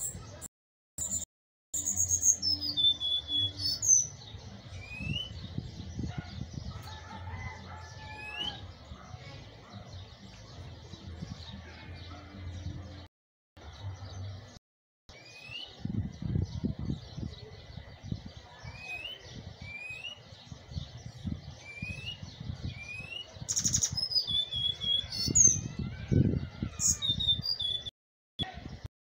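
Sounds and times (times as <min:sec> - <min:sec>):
bird whistling and trilling: 0:01.8 - 0:05.5, 0:08.1 - 0:08.7, 0:15.1 - 0:15.8, 0:18.6 - 0:20.2, 0:21.6 - 0:25.8, 0:26.8 - 0:28.5.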